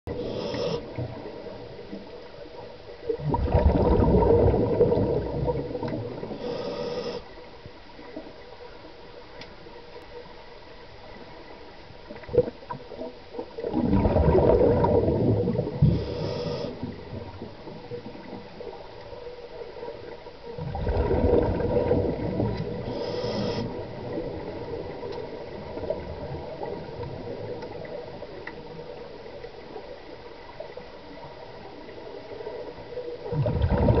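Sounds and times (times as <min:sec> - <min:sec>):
muffled underwater gurgling: 0:00.1 - 0:01.5, 0:03.1 - 0:07.2, 0:13.6 - 0:18.5, 0:20.5 - 0:28.3, 0:33.2 - 0:34.0
low steady underwater murmur: 0:00.1 - 0:34.0.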